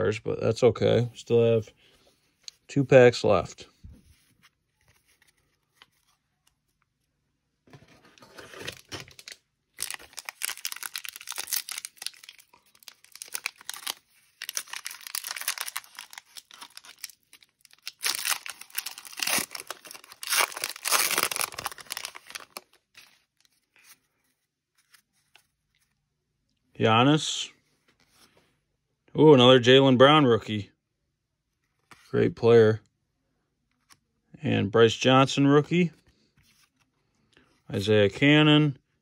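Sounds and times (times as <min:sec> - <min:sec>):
wrapper tearing and crinkling: 0:08.4 - 0:23.1.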